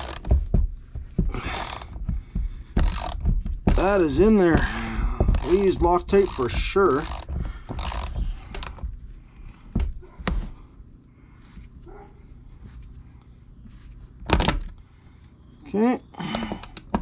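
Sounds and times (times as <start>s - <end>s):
hand ratchet clicking: 0.0s - 0.4s, 1.4s - 2.0s, 2.8s - 8.8s.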